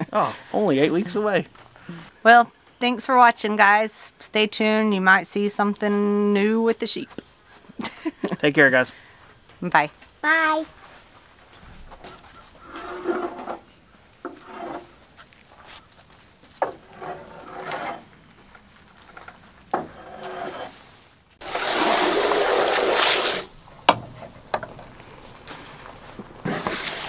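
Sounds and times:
high insect drone: 0:00.0 - 0:27.0.

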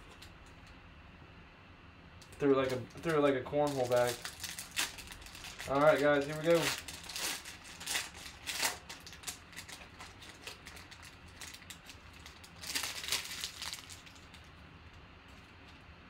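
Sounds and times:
foil wrapper crinkling: 0:02.2 - 0:14.6.

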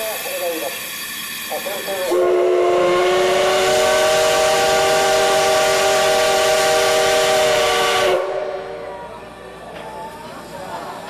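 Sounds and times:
steam hiss: 0:00.0 - 0:08.6
steam locomotive whistle: 0:01.6 - 0:09.1.

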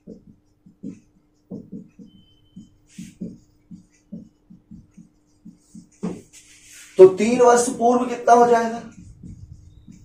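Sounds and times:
marker pen writing on whiteboard: 0:00.0 - 0:10.0
faint steady hum: 0:08.5 - 0:10.0.

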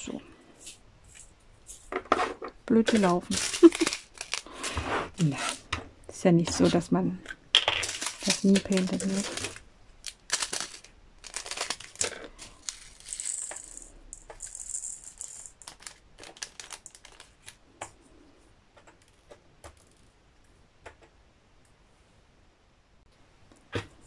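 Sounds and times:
plastic bag crinkling: 0:02.7 - 0:05.7, 0:07.6 - 0:17.6
scissors snipping plastic bag: 0:02.8 - 0:05.6, 0:07.8 - 0:13.0
beads pouring into plastic tray: 0:02.9 - 0:05.6, 0:07.8 - 0:17.4.

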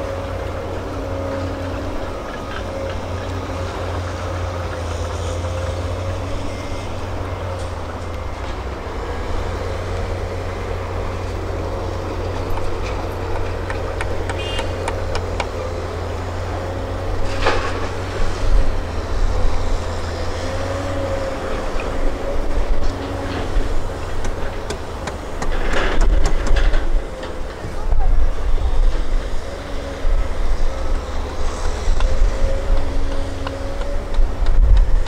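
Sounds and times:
hydraulic whine: 0:00.0 - 0:27.7
excavator diesel engine drone: 0:00.0 - 0:35.0.

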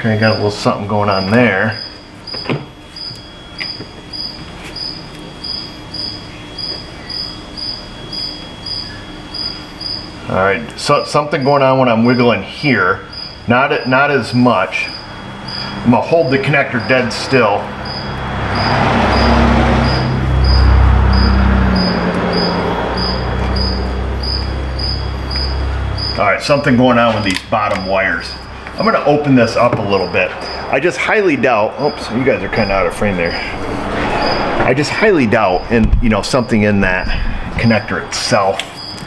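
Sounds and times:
cricket chirping: 0:00.0 - 0:39.0
loud low rumble: 0:17.3 - 0:25.1, 0:30.8 - 0:38.2.

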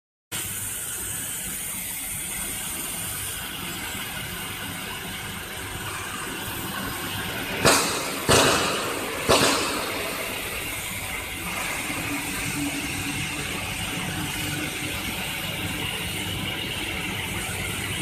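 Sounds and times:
laser cutter hissing: 0:00.4 - 0:18.0
loud bursts of hiss: 0:05.4 - 0:15.6.

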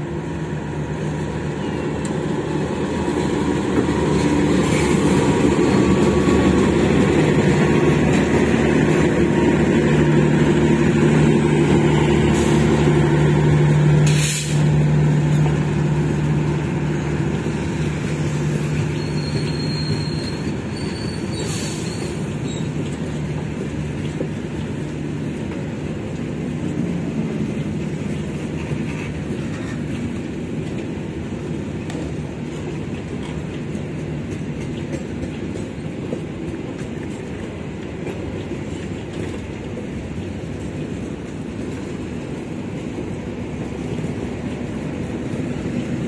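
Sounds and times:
locomotive engine hum: 0:00.0 - 0:46.0
train wheels rumbling on rails: 0:00.0 - 0:46.0.

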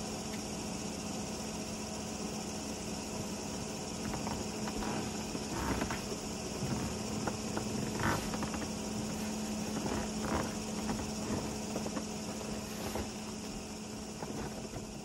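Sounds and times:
air conditioner humming: 0:00.0 - 0:15.0
hiss of moving air: 0:00.0 - 0:15.0
bedding and clothing rustling: 0:04.0 - 0:15.0.

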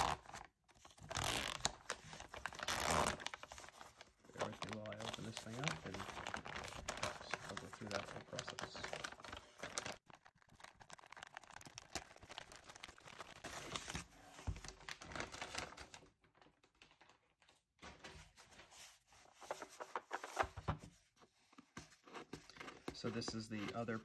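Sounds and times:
packing tape tearing: 0:00.0 - 0:03.7
packing material crinkling: 0:00.0 - 0:18.6.

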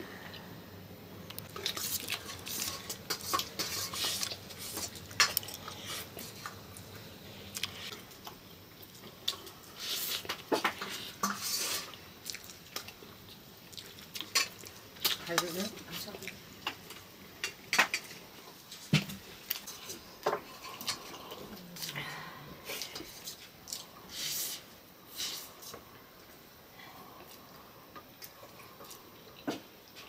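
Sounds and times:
chewing: 0:01.4 - 0:13.0, 0:13.6 - 0:15.5.

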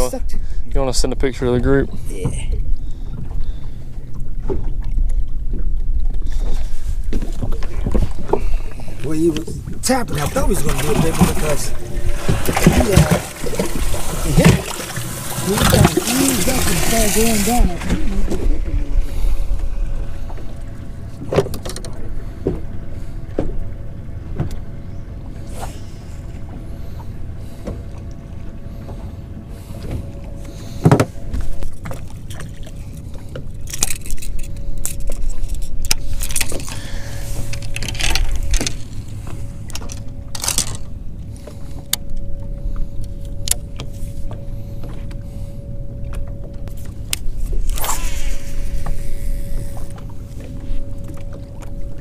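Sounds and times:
water rumble: 0:00.0 - 0:52.0
wind: 0:00.0 - 0:52.0
footsteps and gear on boat deck: 0:02.1 - 0:09.9, 0:10.6 - 0:15.0, 0:19.3 - 0:47.8, 0:48.5 - 0:52.0
electric trolling motor humming: 0:09.6 - 0:52.0
fishing rod cast swish: 0:47.7 - 0:48.9.

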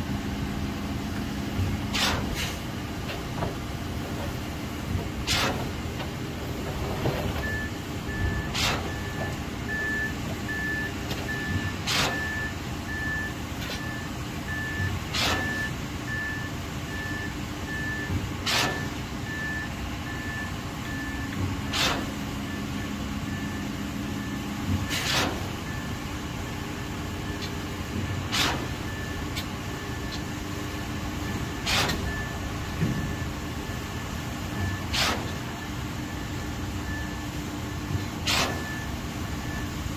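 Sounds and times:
heavy truck engine running: 0:00.0 - 0:39.9
backup alarm beeping: 0:07.4 - 0:18.2, 0:18.8 - 0:21.4, 0:22.4 - 0:24.6, 0:28.8 - 0:34.9.

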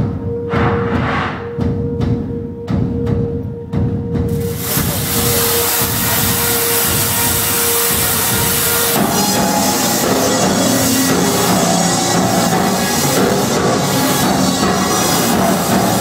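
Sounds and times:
harsh distorted noise: 0:00.3 - 0:01.7, 0:04.3 - 0:16.0
steady held tone: 0:04.4 - 0:16.0
sustained pitched tones: 0:04.5 - 0:16.0.

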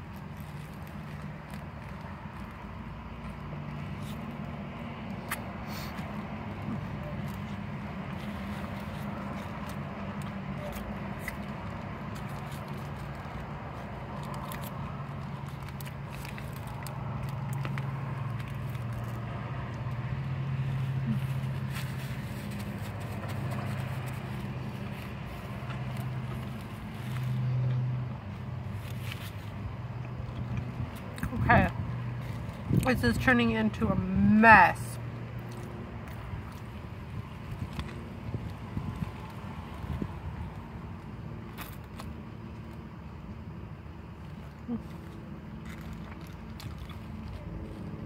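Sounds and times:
person chewing a sandwich: 0:00.0 - 0:32.8, 0:35.2 - 0:48.0
paper wrapper crackling: 0:07.2 - 0:19.4.

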